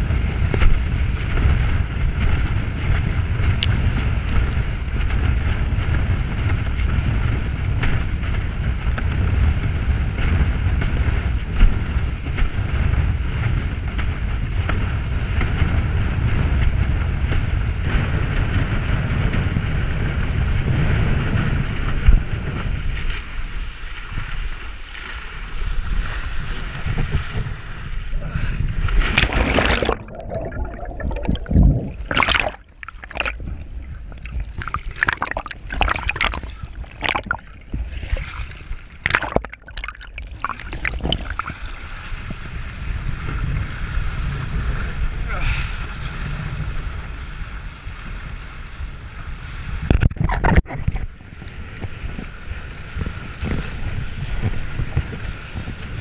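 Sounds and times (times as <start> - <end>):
rushing water: 0.0 - 47.0
splashes and gurgles: 0.0 - 47.5, 49.4 - 56.0
wind buffeting microphone: 0.0 - 56.0.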